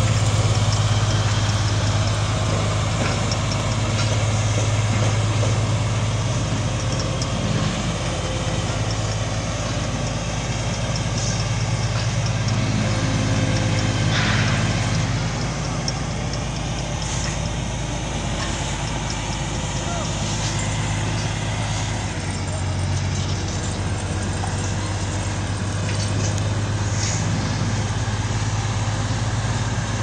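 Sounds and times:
diesel engine droning: 0:00.0 - 0:30.0.

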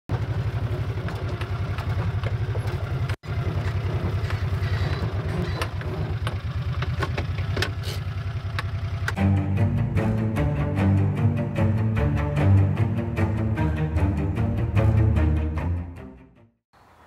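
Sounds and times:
small gasoline engine idling: 0:00.1 - 0:09.2.

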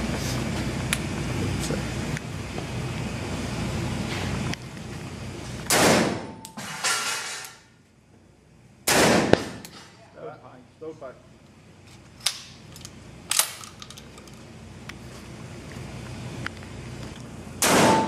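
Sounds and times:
shotgun shots echoing: 0:05.7 - 0:06.4, 0:08.9 - 0:09.6, 0:17.6 - 0:18.0.

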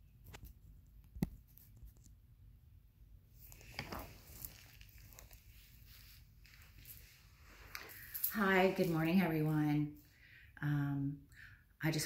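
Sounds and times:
shuffling and rustling on rug: 0:03.4 - 0:09.6.

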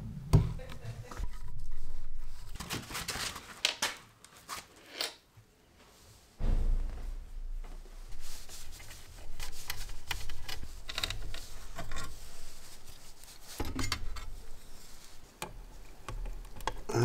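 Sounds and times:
metallic clicks and scraping: 0:08.8 - 0:16.9.

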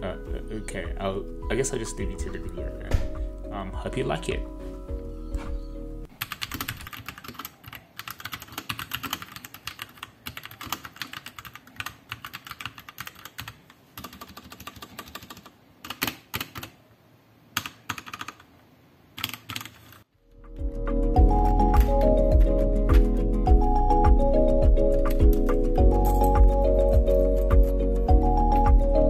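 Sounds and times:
mechanical keyboard typing: 0:06.2 - 0:16.8, 0:17.6 - 0:18.4, 0:19.2 - 0:20.0.

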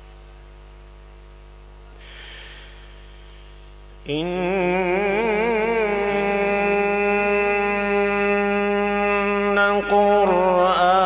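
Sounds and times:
electrical hum: 0:00.0 - 0:11.0
man reciting melodically: 0:04.0 - 0:11.0.

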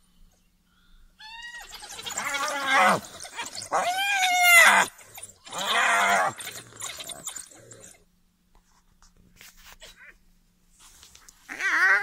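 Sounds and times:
animals squealing: 0:01.2 - 0:08.0, 0:11.5 - 0:12.0.

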